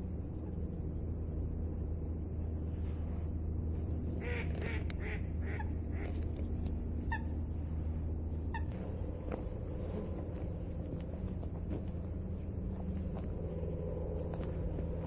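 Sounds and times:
steady low rumble: 0.0 - 15.0
ducks calling: 4.2 - 6.3.

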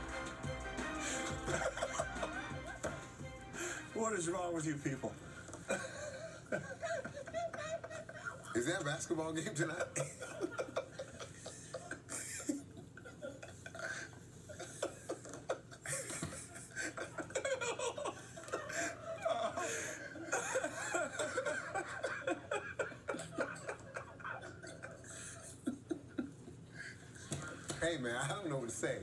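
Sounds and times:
men laughing through tv speaker: 1.0 - 3.9, 5.4 - 27.7.

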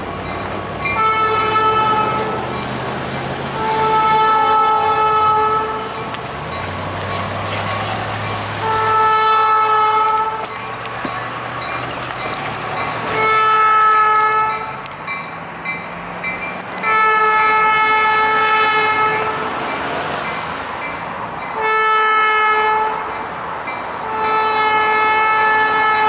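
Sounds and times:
locomotive air horn blasts: 0.9 - 2.5, 3.5 - 6.1, 7.1 - 10.5, 13.1 - 14.7, 16.8 - 19.6, 21.6 - 23.1, 24.0 - 26.0.

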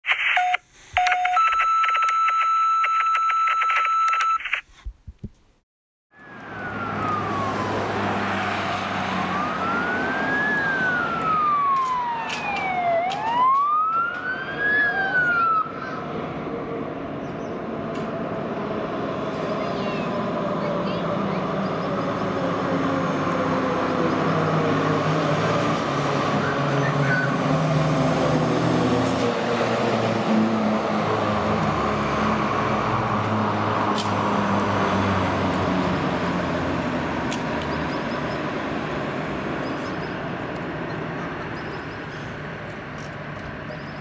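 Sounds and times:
truck engine and tyre noise: 0.0 - 44.0
fire engine siren wailing: 6.1 - 37.1.

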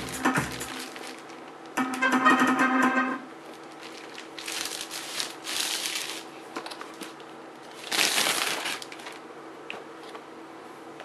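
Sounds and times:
plastic shrink wrap crinkling: 0.5 - 1.5, 3.4 - 9.2.

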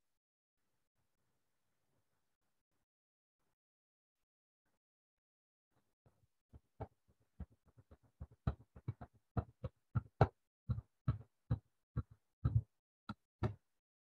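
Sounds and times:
sharp taps with low thuds: 8.2 - 12.7.

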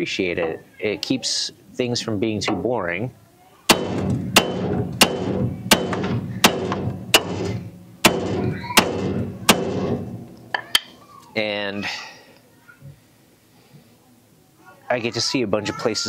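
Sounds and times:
hammer on metal ringing: 3.7 - 10.7.

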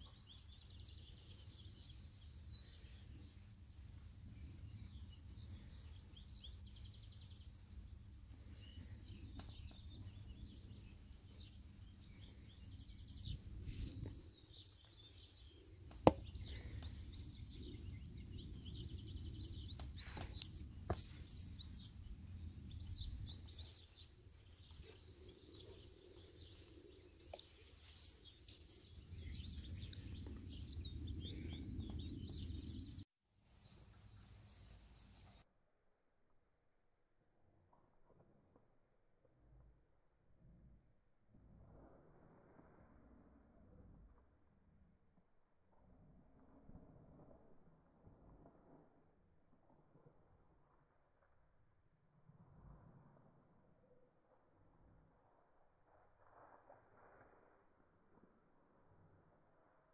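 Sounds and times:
small birds chirping: 0.0 - 33.0.

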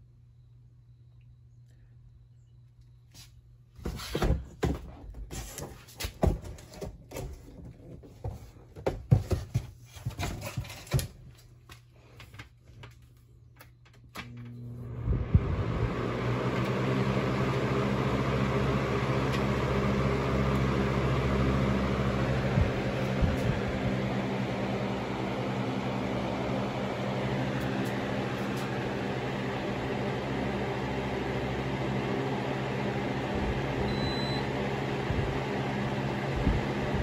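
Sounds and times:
box fan running: 2.4 - 37.0.

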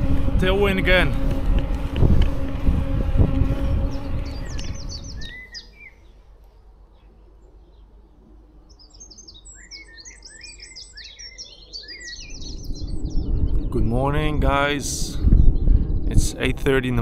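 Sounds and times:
wind rumble on microphone: 0.0 - 5.9, 12.2 - 17.0
small birds chirping: 3.5 - 6.2, 6.9 - 14.2.

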